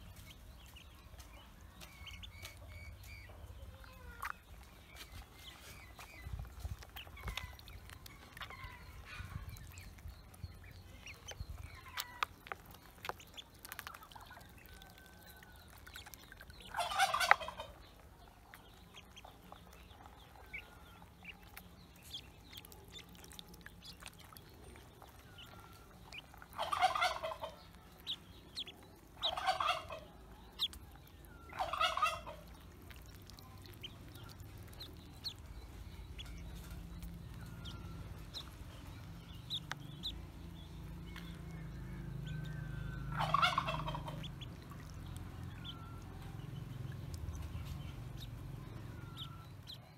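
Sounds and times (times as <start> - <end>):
ducklings peeping: 0.0 - 49.9
fowl rattling calls: 16.6 - 17.7, 26.5 - 27.6, 29.2 - 30.0, 31.5 - 32.6, 43.1 - 44.8
small splashes in water: 18.5 - 29.4.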